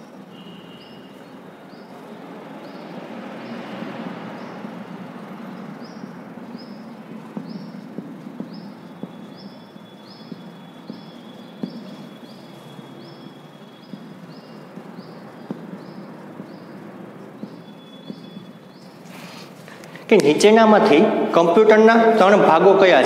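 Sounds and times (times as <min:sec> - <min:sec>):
marker scratching on whiteboard: 0:00.0 - 0:20.0
faint high chirp: 0:00.3 - 0:01.9, 0:08.4 - 0:18.9
light taps: 0:05.8 - 0:20.4.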